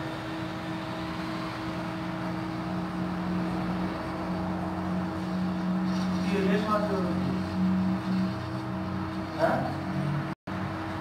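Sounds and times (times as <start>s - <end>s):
mechanical hum: 0.0s - 11.0s.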